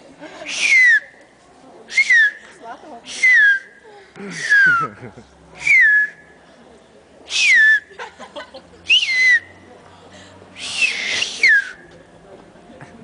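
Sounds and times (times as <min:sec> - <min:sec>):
woman finger whistling: 0:00.6 - 0:01.2, 0:01.9 - 0:02.4, 0:03.1 - 0:03.7, 0:05.6 - 0:06.2, 0:07.3 - 0:07.8, 0:08.9 - 0:09.5, 0:10.6 - 0:11.8.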